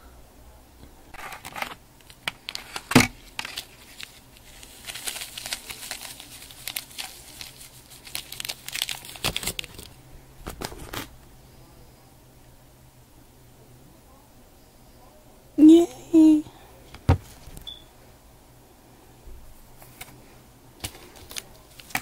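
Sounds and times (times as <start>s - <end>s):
plastic tray crinkling: 1.2s - 11.1s, 20.8s - 22.0s.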